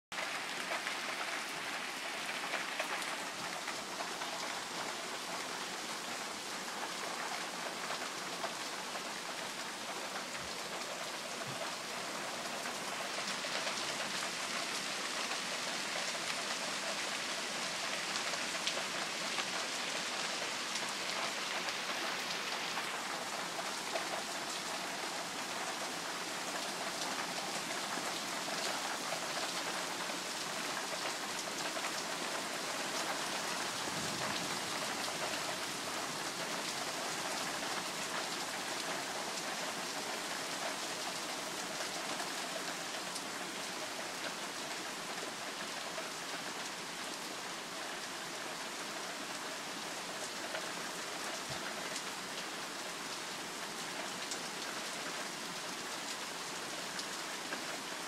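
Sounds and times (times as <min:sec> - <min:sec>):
steady rain falling: 0:00.1 - 0:58.0.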